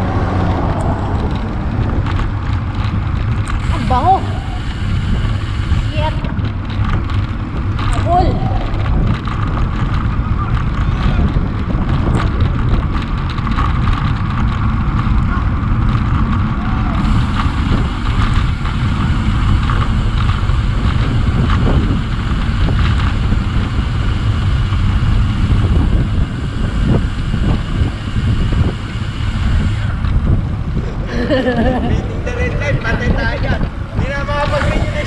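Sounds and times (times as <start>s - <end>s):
bicycle tyre rumble: 0.0s - 35.0s
wind buffeting microphone: 0.0s - 35.0s.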